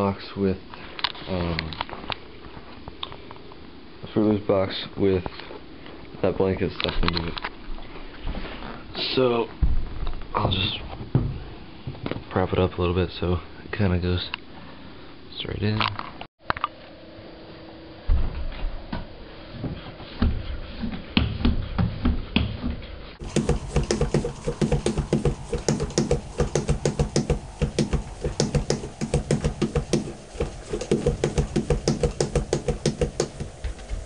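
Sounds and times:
bicycle pump strokes: 23.2s - 34.0s.

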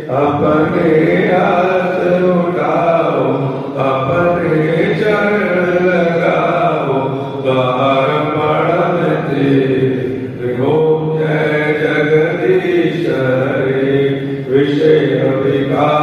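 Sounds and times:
man chanting into a microphone: 0.0s - 16.0s.

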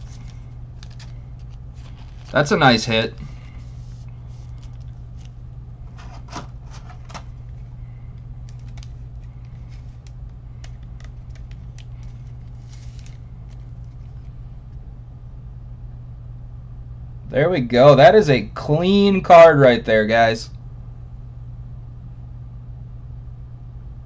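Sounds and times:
cards and packaging clicking: 0.0s - 3.7s, 4.3s - 14.4s
packaging crinkling: 0.0s - 14.4s
steady low hum: 0.0s - 24.0s.

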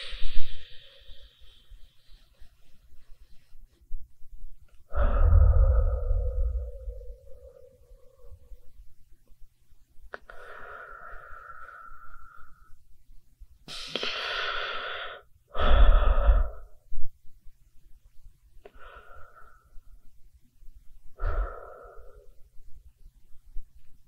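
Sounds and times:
person breathing close up: 0.0s - 2.5s, 4.8s - 8.8s, 10.2s - 12.9s, 13.7s - 17.0s, 18.6s - 20.1s, 21.0s - 22.6s
breath hitting microphone: 4.9s - 8.6s.

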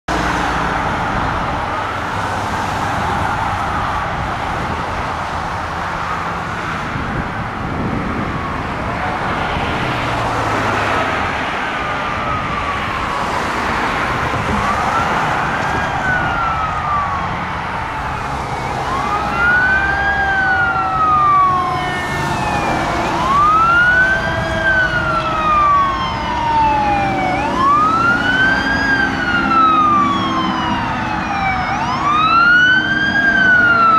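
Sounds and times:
traffic noise: 0.1s - 33.9s
mechanical siren wailing: 14.3s - 33.9s.

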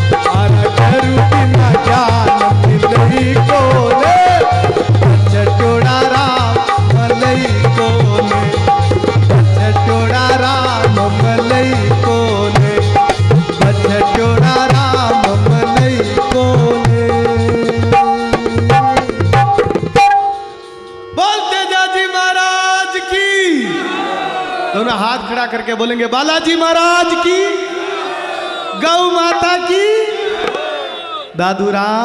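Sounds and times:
tabla drumming: 0.0s - 20.7s.

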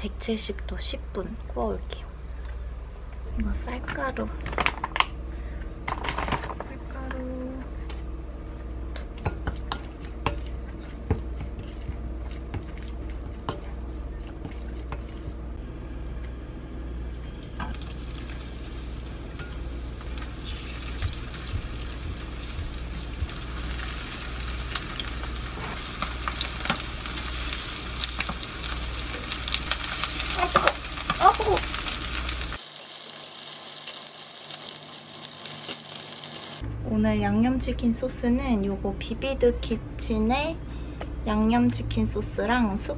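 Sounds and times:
chicken sizzling in frying pan: 17.6s - 36.6s.

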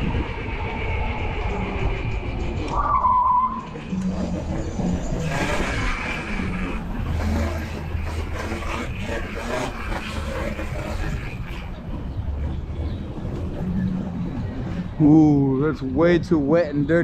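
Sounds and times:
tyre and wind noise: 0.0s - 17.0s
short squeal: 2.7s - 4.0s.

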